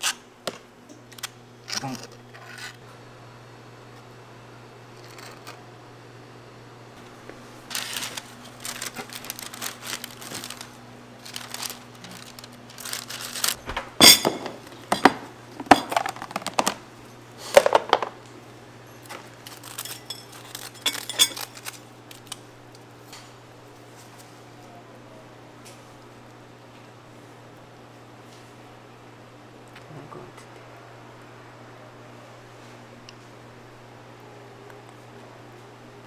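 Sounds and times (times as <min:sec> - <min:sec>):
steady low hum: 0:00.0 - 0:36.0
metal utensils and dishes clattering: 0:14.0 - 0:16.5, 0:19.6 - 0:21.8.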